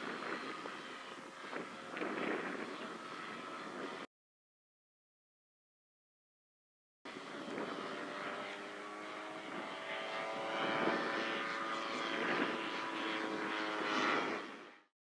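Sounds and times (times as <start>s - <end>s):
model airplane engine buzzing: 0.0s - 4.1s, 7.1s - 14.9s.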